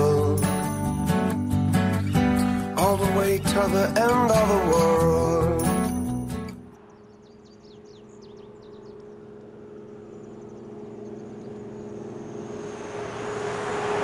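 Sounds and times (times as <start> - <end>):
birds chirping: 0.0 - 14.0
pickup truck engine hum: 6.8 - 14.0.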